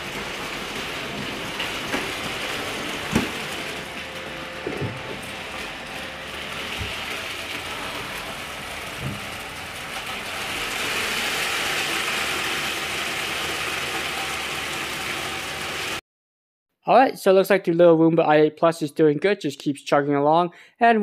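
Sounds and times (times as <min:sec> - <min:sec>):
robot vacuum running: 0:00.0 - 0:16.0.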